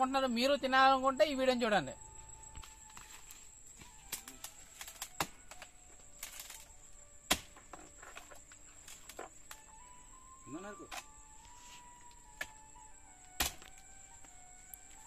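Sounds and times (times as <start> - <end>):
faint high-pitched whine: 0.0 - 15.0
dry palm stalks snapping: 2.5 - 6.7, 7.3 - 9.7, 13.3 - 14.3.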